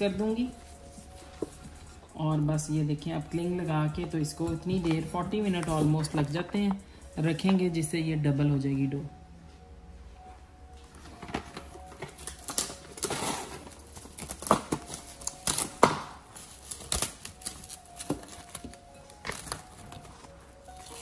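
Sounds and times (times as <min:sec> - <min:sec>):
cling film crinkling: 0:11.1 - 0:21.0.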